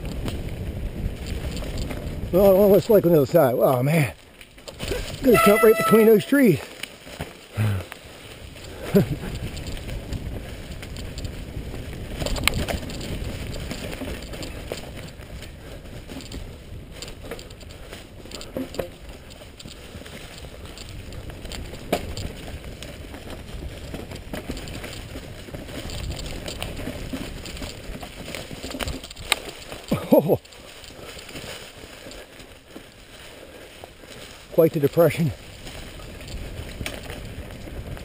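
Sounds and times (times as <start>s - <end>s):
bike tyres on dry leaves: 0.0s - 38.0s
bike knocking on bumps: 8.9s - 32.9s.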